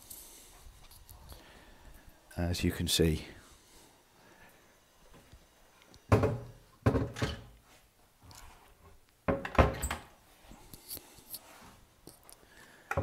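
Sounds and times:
wooden cupboard doors thunking shut: 6.1 - 7.5.

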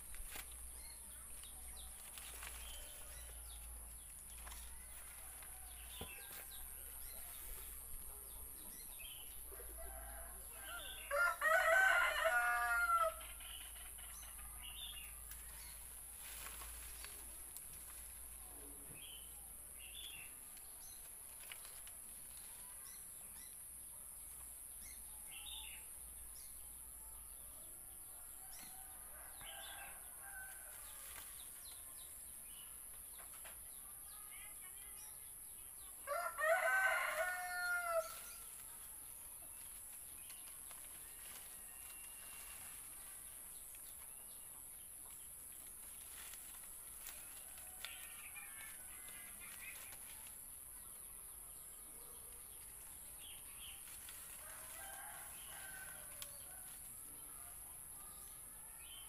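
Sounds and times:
rooster crowing: 9.8 - 13.2, 36.1 - 38.2.

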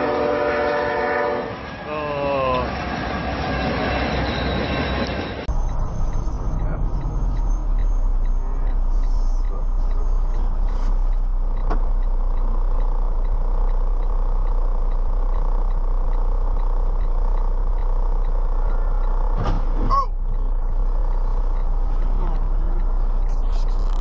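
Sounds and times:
vehicle running with deep hum: 5.0 - 24.0
faint ticks: 5.6 - 19.5, 20.2 - 24.0.

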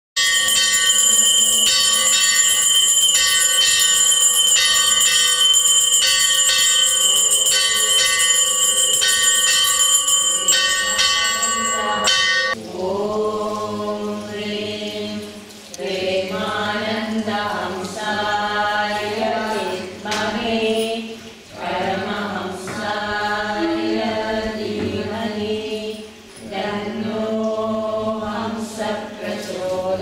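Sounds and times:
temple bells ringing: 0.2 - 12.6, 23.6 - 24.8
voices chanting: 11.5 - 30.0.

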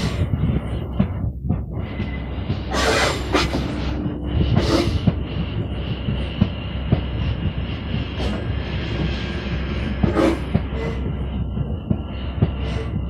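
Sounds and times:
electric train running with whine: 0.0 - 13.0.

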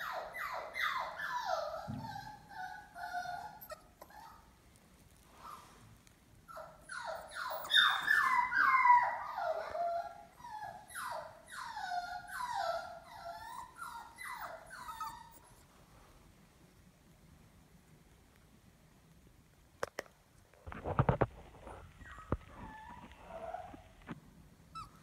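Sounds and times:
puppies whining: 0.0 - 4.6, 6.5 - 15.7, 21.7 - 24.0, 24.7 - 25.0.

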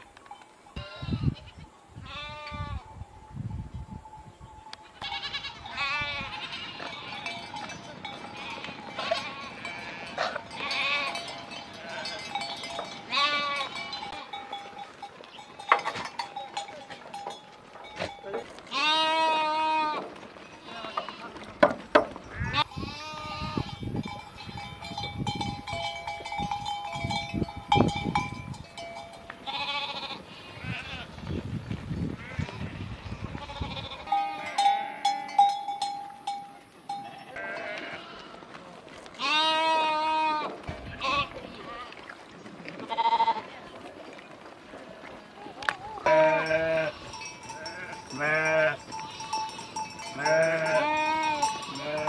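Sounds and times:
goats bleating: 4.9 - 14.5, 17.9 - 21.5, 22.3 - 23.8, 29.4 - 31.1, 32.2 - 35.3, 36.9 - 38.6, 39.2 - 42.0, 42.8 - 43.6, 45.8 - 52.0.

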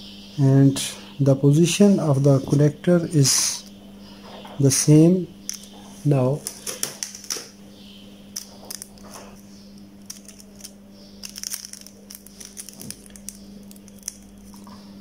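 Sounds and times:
steady low hum: 0.0 - 15.0
tape clicks and crinkles: 5.5 - 5.7, 8.4 - 9.4, 10.0 - 14.8.

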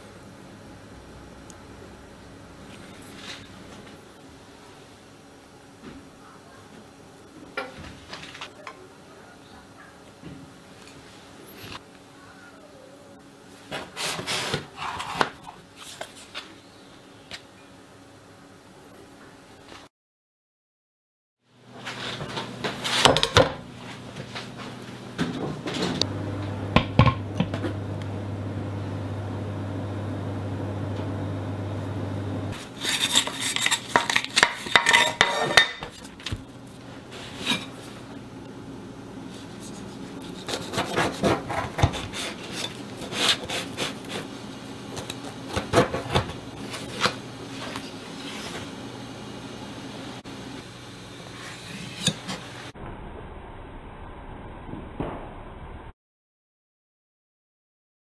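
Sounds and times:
steady low hum: 0.0 - 7.4, 21.5 - 35.3, 35.9 - 54.4.

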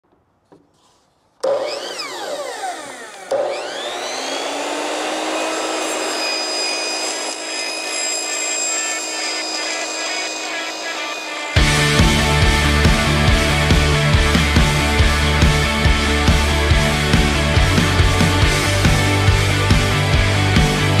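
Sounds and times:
miter saw cutting pipe: 1.4 - 21.0.

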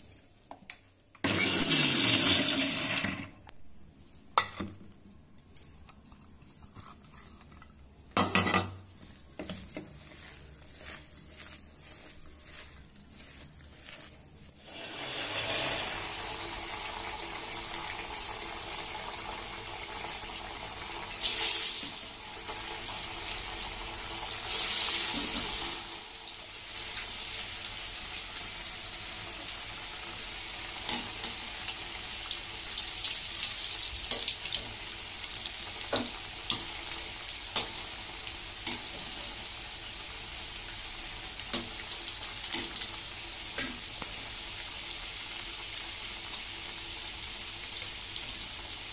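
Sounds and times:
food deep-frying in oil: 14.6 - 48.9.

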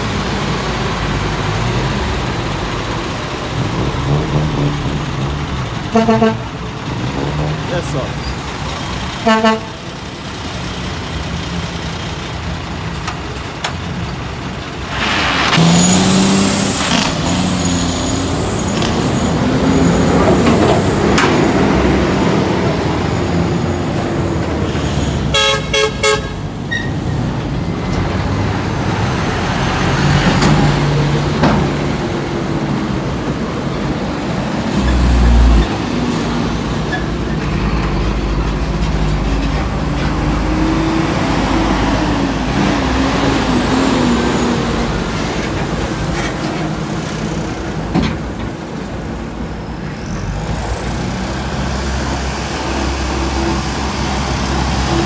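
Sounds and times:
diesel truck engines: 0.0 - 55.0
truck horn toots: 5.9 - 6.5, 9.2 - 9.8, 25.3 - 26.5.

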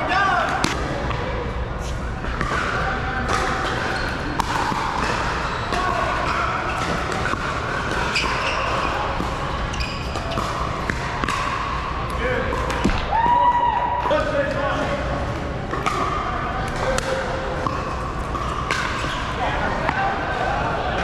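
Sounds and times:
background voices in indoor hall: 0.0 - 21.0.

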